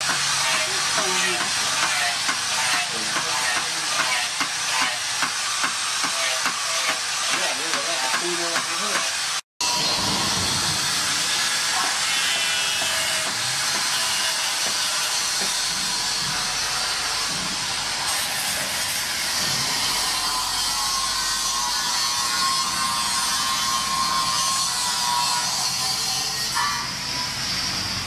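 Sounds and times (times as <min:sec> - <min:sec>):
forge blower air rushing: 0:00.0 - 0:21.4.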